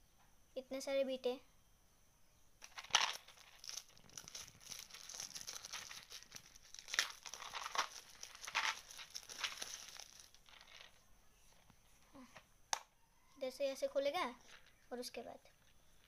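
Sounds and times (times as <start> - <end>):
plastic wrap crinkling: 2.6 - 11.0.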